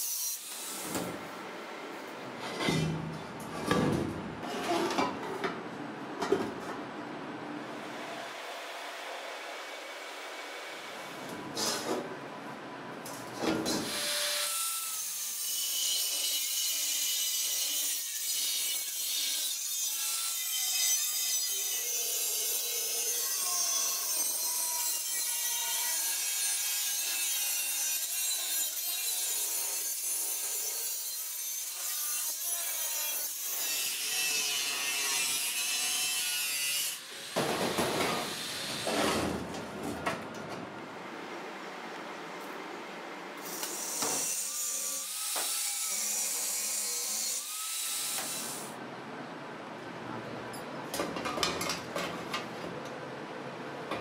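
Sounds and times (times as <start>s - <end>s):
angle grinder cutting steel: 13.8s - 37.4s, 43.4s - 48.7s.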